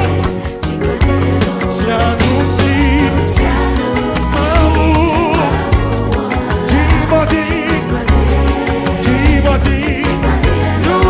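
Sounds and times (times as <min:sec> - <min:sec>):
gospel band music: 0:00.0 - 0:11.0.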